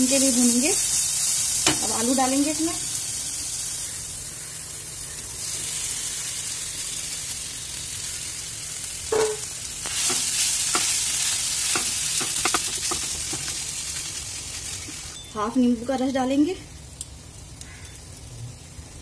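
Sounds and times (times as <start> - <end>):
oil sizzling in a frying pan: 0.0 - 19.0
spatula stirring knocks: 11.7 - 13.6.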